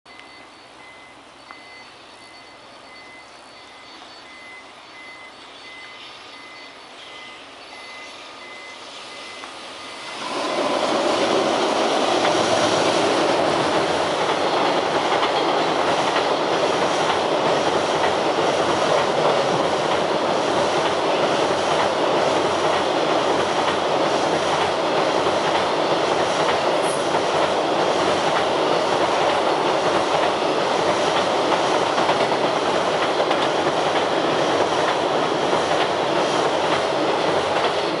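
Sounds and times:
freight train passing: 0.1 - 38.0
wagon wheels rumbling on rails: 10.1 - 38.0.

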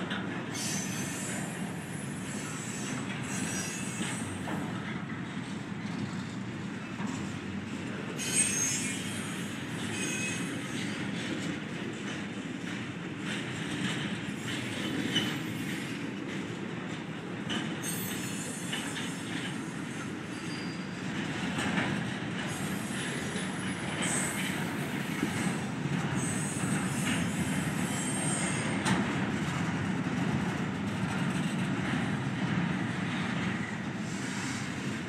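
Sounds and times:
train wheels rumbling on rail: 0.0 - 35.0
high wheel squeals: 0.5 - 4.5, 8.2 - 11.0, 17.8 - 21.1, 22.5 - 25.6, 26.2 - 28.8.

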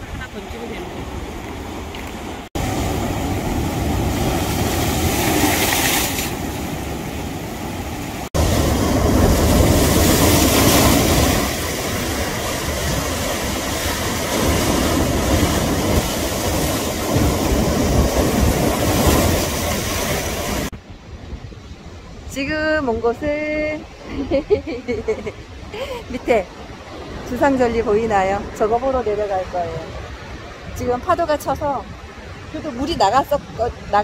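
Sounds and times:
wind rumbling on microphone: 0.0 - 34.0
surf breaking over rocks: 0.7 - 20.7.

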